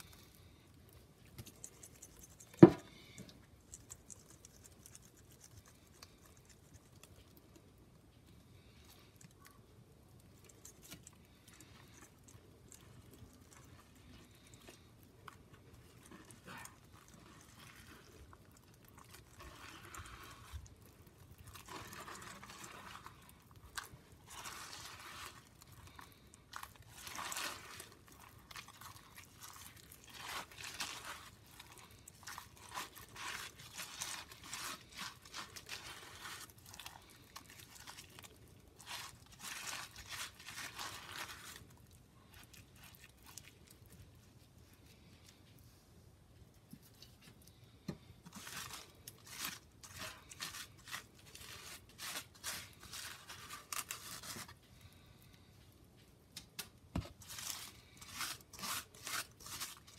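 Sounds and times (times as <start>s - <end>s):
wet paste crunching through mesh: 8.6s - 45.0s.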